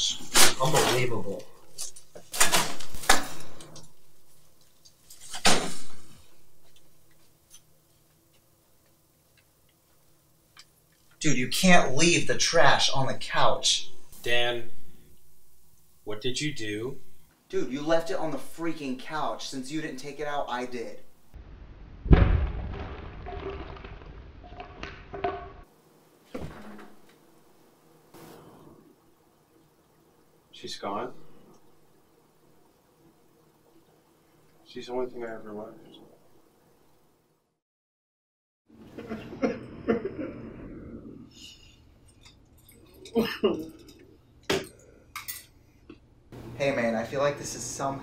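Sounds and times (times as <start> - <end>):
loud bang: 21.4 - 25.6
stuffed bag bursting: 22.0 - 25.1.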